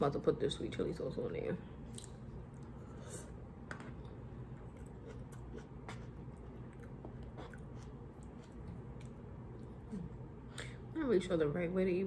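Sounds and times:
low steady hum: 0.0s - 12.0s
person chewing noodles: 3.9s - 10.0s.

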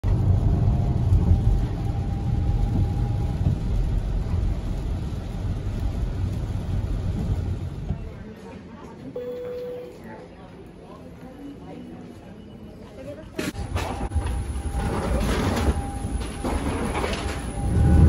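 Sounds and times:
car driving on wet road: 0.0s - 8.2s.

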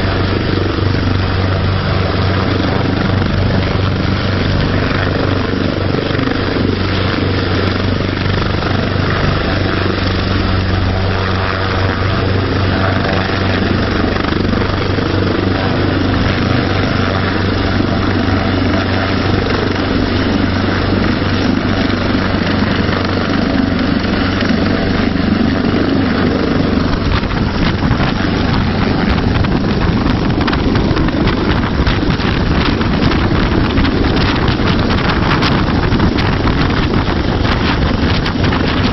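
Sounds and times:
helicopter hovering: 0.0s - 38.9s
wind buffeting microphone: 0.0s - 38.9s.

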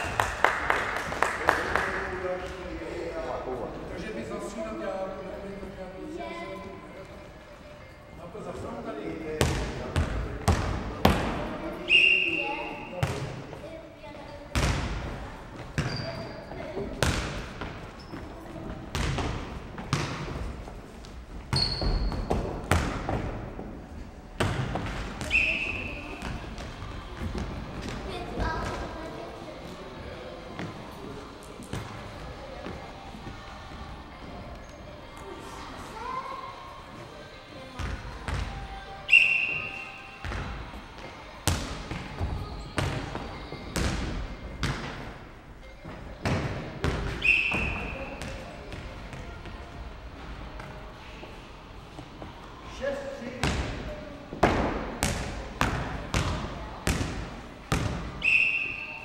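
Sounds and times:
referee's whistle blast: 11.9s - 12.9s, 39.1s - 40.0s, 47.2s - 48.0s, 58.2s - 59.0s.

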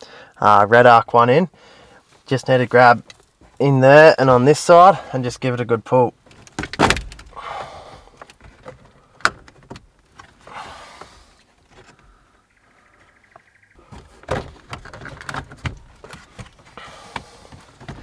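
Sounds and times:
plastic scraping and rattling: 6.3s - 7.4s, 8.2s - 10.4s, 13.8s - 18.0s.

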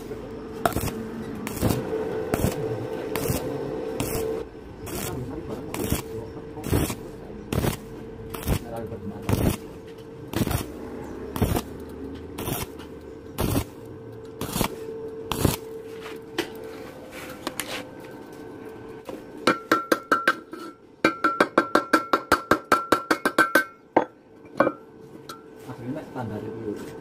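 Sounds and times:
welding arc bursts: 0.0s - 9.7s, 10.3s - 11.8s, 12.4s - 12.8s, 13.4s - 15.7s
steady hum: 0.0s - 27.0s.

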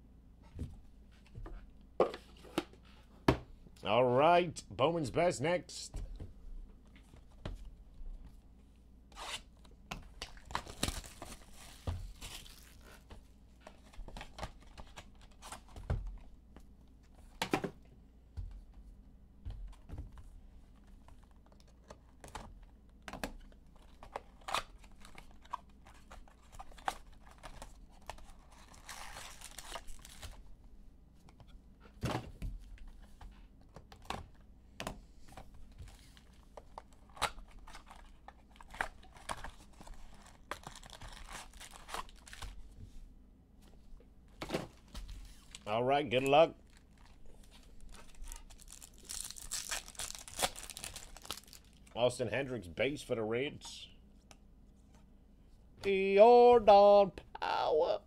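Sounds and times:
wrappers ripping and crinkling: 10.3s - 13.0s, 28.3s - 30.4s, 37.2s - 42.5s, 46.6s - 51.9s.

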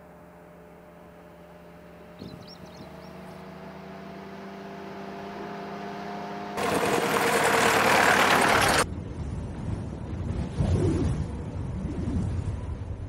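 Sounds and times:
car engine running: 1.6s - 8.9s.

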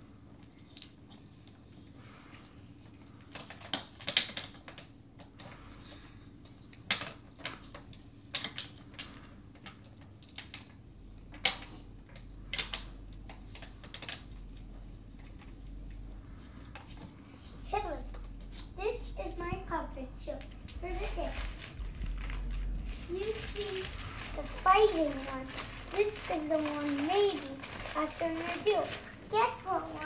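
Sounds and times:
curtain rustling and clicking: 18.7s - 30.0s.

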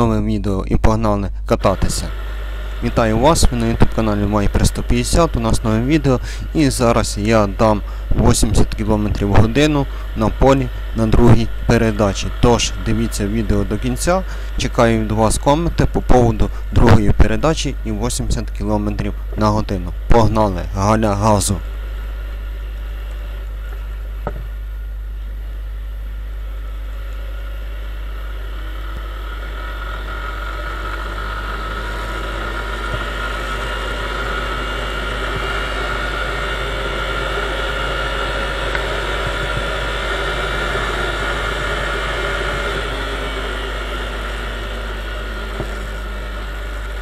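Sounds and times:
motorcycle engine revving: 28.2s - 47.0s.

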